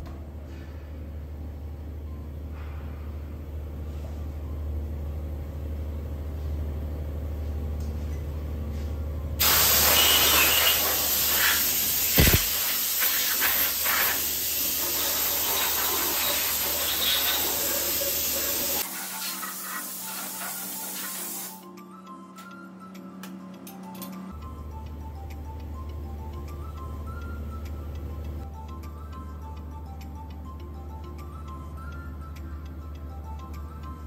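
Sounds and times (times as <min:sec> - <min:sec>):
pressure washer spray hissing: 0:09.4 - 0:21.6.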